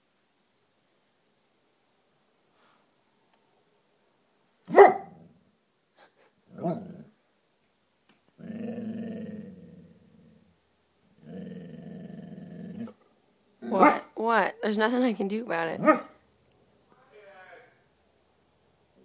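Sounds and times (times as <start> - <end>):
dog barking sharply: 4.7 - 5.2, 13.7 - 14.1, 15.8 - 16.2
dog growling low: 6.5 - 7.2, 8.4 - 10.6, 11.2 - 13.0.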